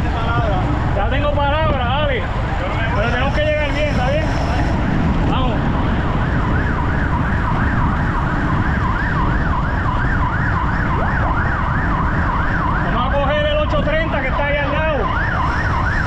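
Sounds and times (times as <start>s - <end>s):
low rush: 0.0s - 16.0s
siren yelping: 5.4s - 16.0s.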